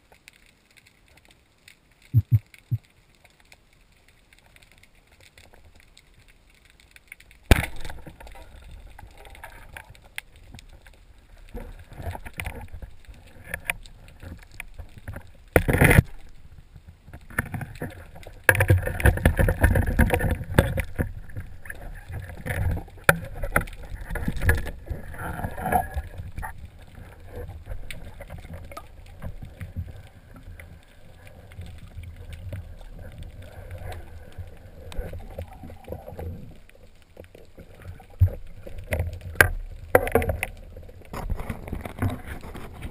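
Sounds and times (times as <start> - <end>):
underwater rushing and sloshing: 0.0 - 42.9
knocks and clicks: 2.1 - 2.8.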